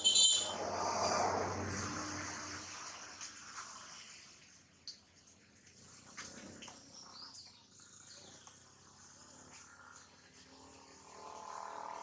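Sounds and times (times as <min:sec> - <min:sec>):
high bird chirp: 0:00.0 - 0:00.6
rushing noise: 0:00.0 - 0:02.7.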